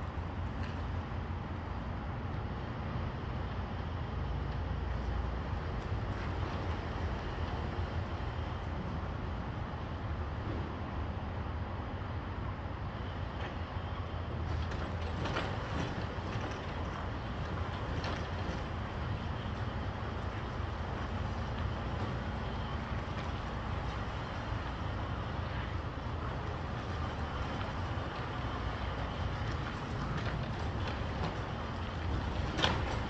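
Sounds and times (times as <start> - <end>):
truck diesel engine rumbling: 11.4 - 33.0.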